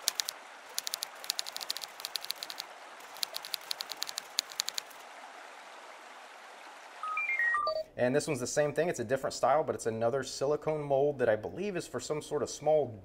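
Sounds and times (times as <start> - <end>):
typewriter key clicks: 0.0 - 2.6
faint steady hiss: 0.0 - 13.0.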